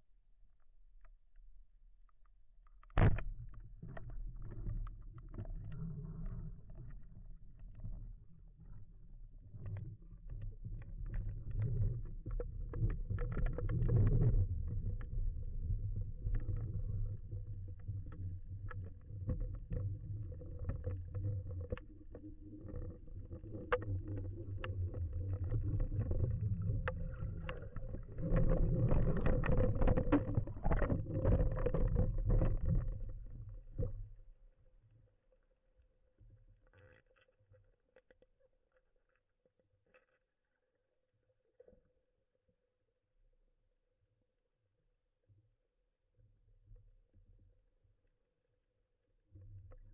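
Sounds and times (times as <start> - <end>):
low underwater rumble: 2.8 - 34.9.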